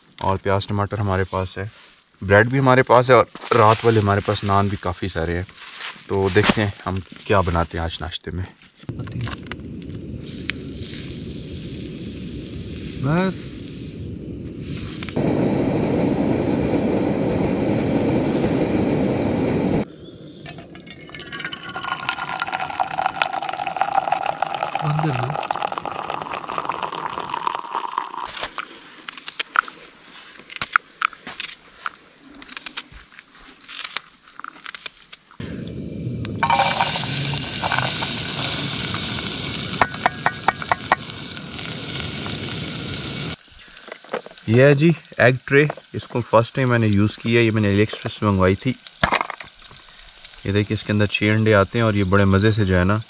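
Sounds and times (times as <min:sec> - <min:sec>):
onions sizzling in hot oil: 0:10.0 - 0:15.3, 0:35.8 - 0:53.0
tea pouring into a steel mug: 0:20.4 - 0:28.4, 0:36.4 - 0:42.3.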